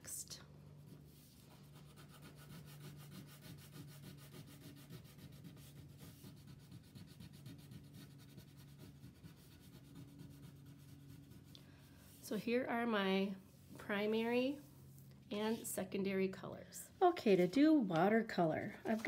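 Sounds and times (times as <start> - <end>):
crayon rubbing on paper: 0.8 - 12.2.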